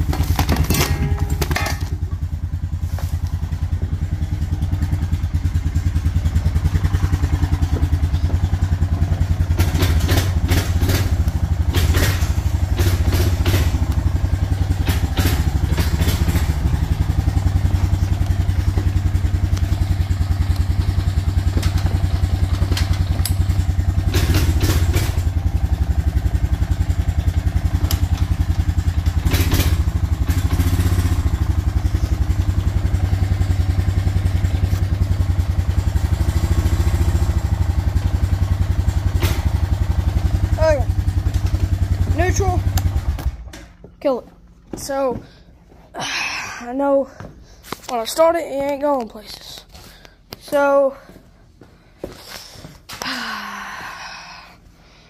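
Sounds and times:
engine clatter bursts: 0:00.0 - 0:43.9
car engine idling: 0:00.0 - 0:44.6.

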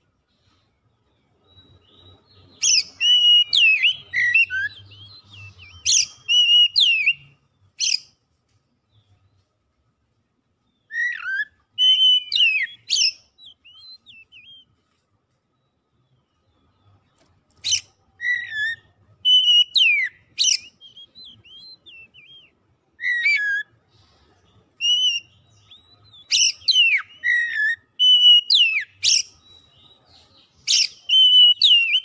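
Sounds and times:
bird singing whistled phrases: 0:01.6 - 0:08.0, 0:10.8 - 0:14.7, 0:17.6 - 0:23.8, 0:24.8 - 0:32.0.

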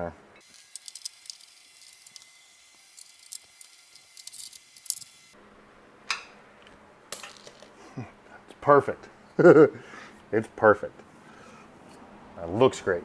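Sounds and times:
socket ratchet clicking: 0:00.7 - 0:02.3, 0:02.9 - 0:05.1.

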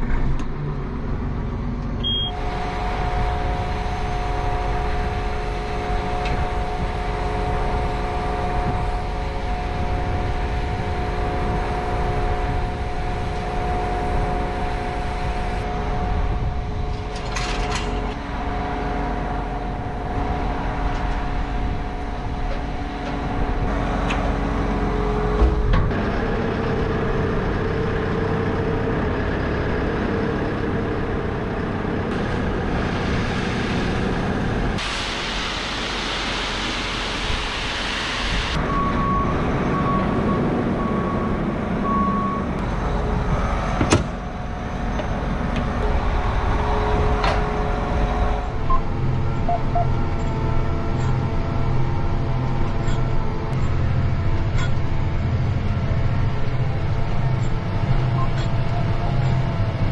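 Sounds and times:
diesel tractor running: 0:00.0 - 0:59.9
short high beeps: 0:02.0 - 0:02.4
rushing hiss: 0:32.3 - 0:38.6.

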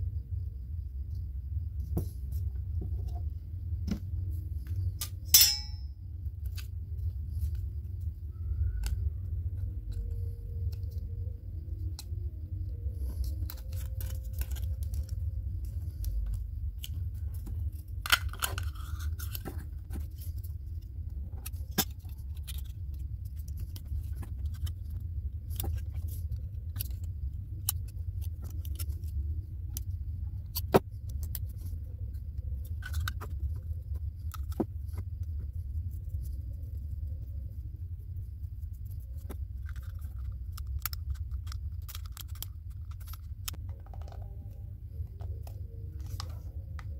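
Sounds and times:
steady low hum: 0:00.0 - 0:46.9
metal clicks and crinkles: 0:04.6 - 0:07.7, 0:11.7 - 0:31.8, 0:38.7 - 0:46.9.

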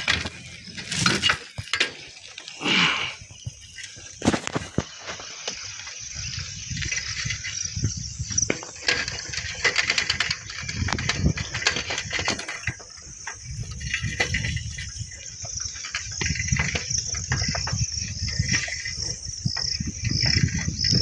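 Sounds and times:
bicycle rattling on stony road: 0:00.0 - 0:21.0
wind rumble on microphone: 0:02.7 - 0:21.0.

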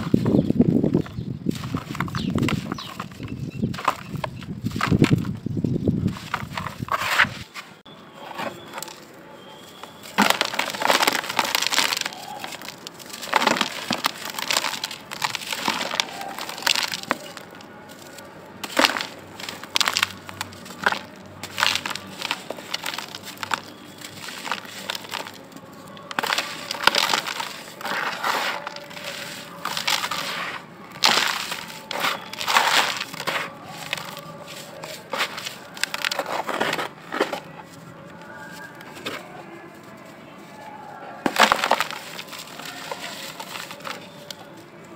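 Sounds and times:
hands crushing dry blocks: 0:00.0 - 0:07.6, 0:08.3 - 0:39.9, 0:40.5 - 0:44.9
grit and powder pouring: 0:10.1 - 0:17.6, 0:41.3 - 0:44.1.

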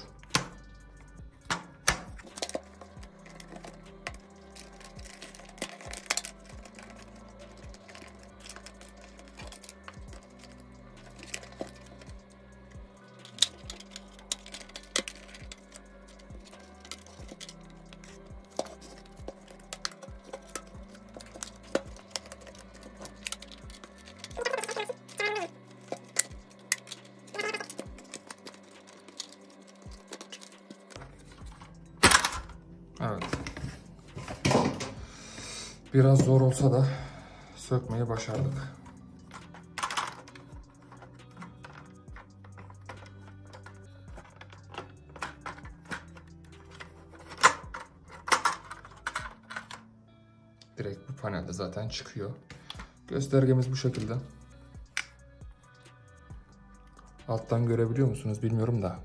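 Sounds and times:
plastic clips clicking and snapping: 0:01.5 - 0:12.0, 0:13.2 - 0:31.1, 0:39.2 - 0:49.8
plastic squeals falling in pitch: 0:24.3 - 0:25.5.

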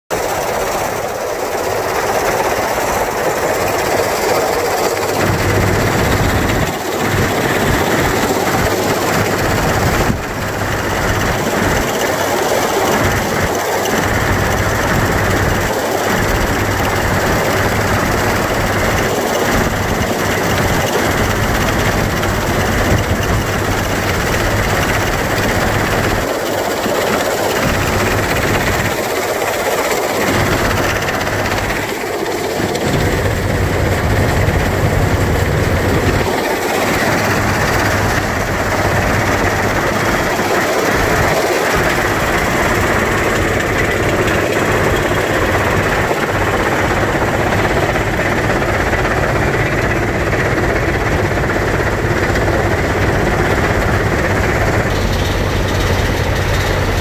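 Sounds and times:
rattle of feeder and rock: 0:54.9 - 0:57.0.

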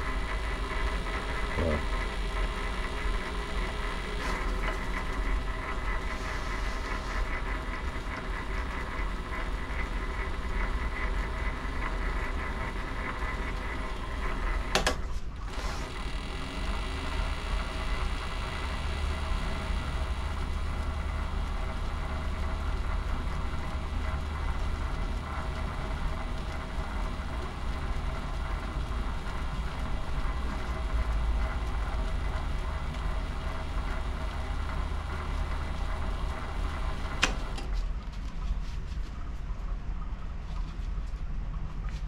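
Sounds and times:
bench lathe motor running: 0:00.0 - 0:37.8
lathe switch click: 0:14.7 - 0:15.0, 0:37.2 - 0:37.7.

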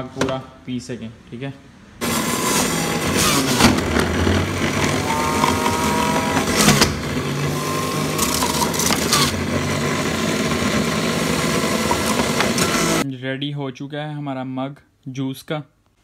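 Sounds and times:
juicer motor running: 0:02.0 - 0:13.0.

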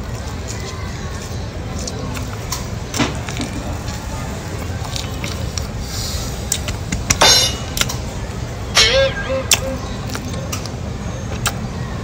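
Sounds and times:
chewing marshmallow: 0:01.7 - 0:02.6, 0:03.2 - 0:06.8, 0:09.5 - 0:11.6
wet mouth clicks: 0:09.5 - 0:11.6.

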